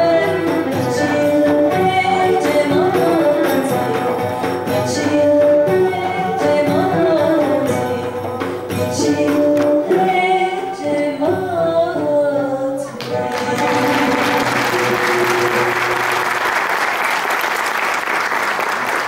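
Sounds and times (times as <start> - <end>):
soloist and choir singing: 0.0 - 16.4
classical ensemble playing: 13.0 - 16.7
audience applause: 13.0 - 19.0.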